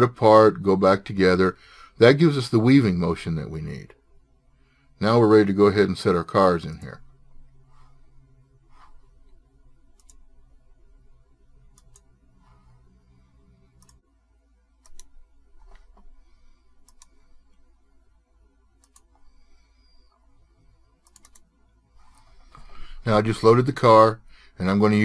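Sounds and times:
low steady hum: 0:00.0 - 0:25.0
faint computer mouse clicks: 0:10.0 - 0:10.2, 0:11.7 - 0:12.8, 0:13.7 - 0:14.0, 0:14.8 - 0:16.1, 0:16.8 - 0:17.6, 0:18.8 - 0:20.2, 0:21.0 - 0:22.7.

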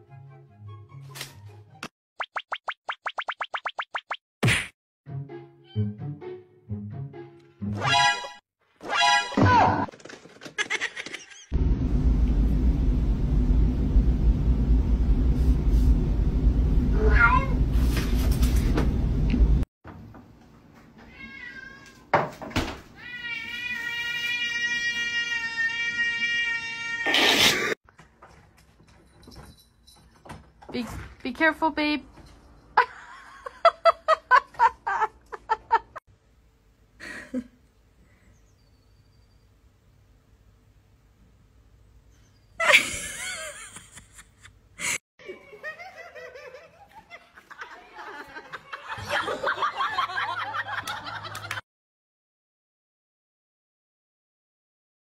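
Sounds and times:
person laughing: 0:10.6 - 0:11.5, 0:37.0 - 0:37.6, 0:42.6 - 0:51.6
steady low rumble: 0:11.6 - 0:17.0.

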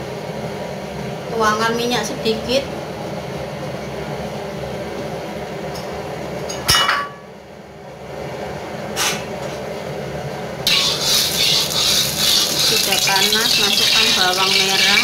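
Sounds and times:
oil hissing in pan: 0:10.7 - 0:15.0.

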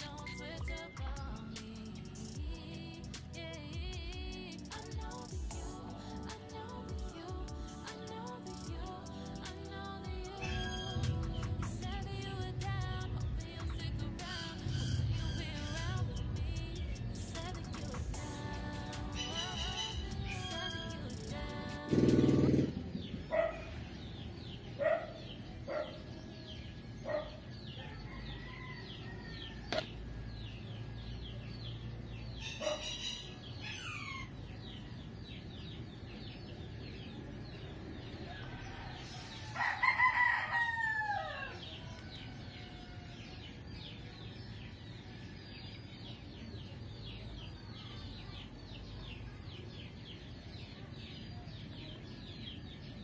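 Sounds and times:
high chirping: 0:00.0 - 0:26.2
rooster crowing: 0:14.5 - 0:16.2, 0:19.1 - 0:21.0, 0:27.7 - 0:30.9, 0:38.2 - 0:43.6.

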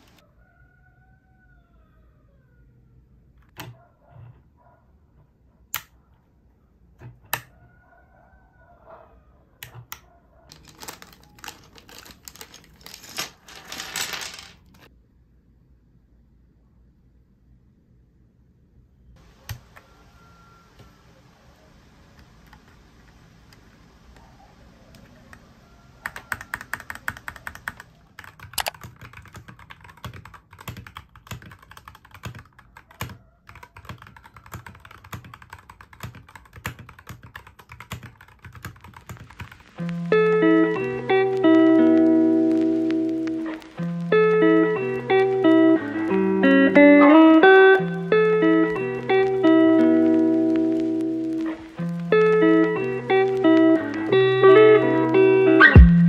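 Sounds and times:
plastic keyboard clicks: 0:09.6 - 0:13.2, 0:26.0 - 0:40.0
keycaps clattering: 0:10.5 - 0:14.9, 0:26.1 - 0:41.6.

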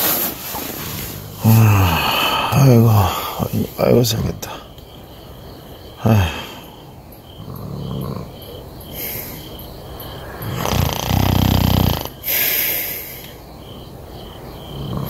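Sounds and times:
insects chirping: 0:00.0 - 0:15.0
rustle: 0:00.0 - 0:15.0
man breathing throatily: 0:01.0 - 0:03.8, 0:04.4 - 0:07.1, 0:08.8 - 0:13.6.

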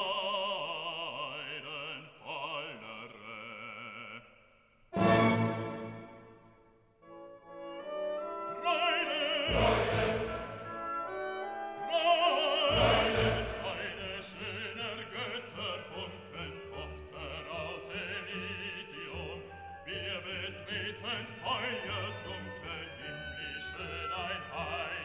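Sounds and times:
orchestral accompaniment: 0:05.0 - 0:25.0
person singing with vibrato: 0:11.5 - 0:25.0.

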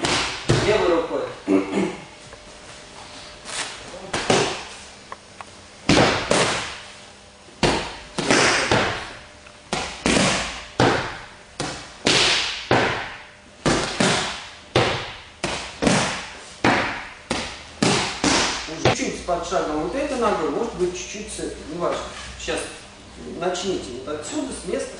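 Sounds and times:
punches slapping focus mitts: 0:00.0 - 0:00.7, 0:05.9 - 0:06.8, 0:07.6 - 0:09.0, 0:09.7 - 0:18.9.

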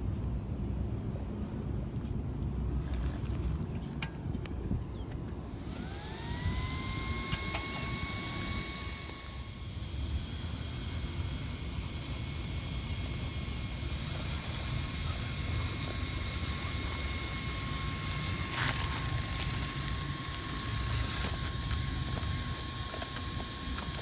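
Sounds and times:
electric motor whining: 0:05.4 - 0:24.0.

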